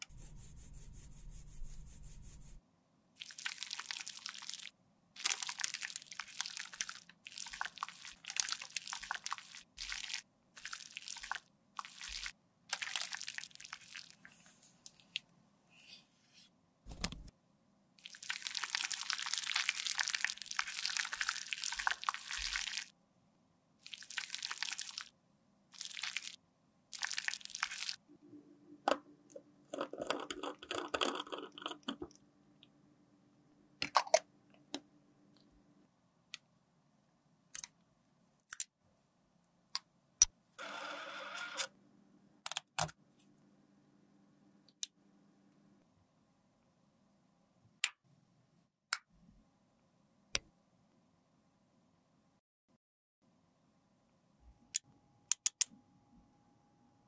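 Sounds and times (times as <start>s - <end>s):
liquid squished from plastic bag: 3.2s - 14.2s, 18.0s - 22.9s.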